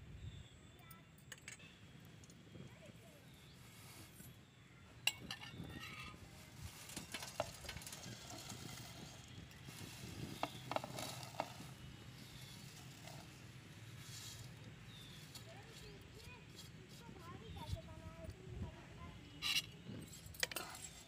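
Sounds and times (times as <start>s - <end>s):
dry noodles rustling in a pan: 5.8s - 17.2s.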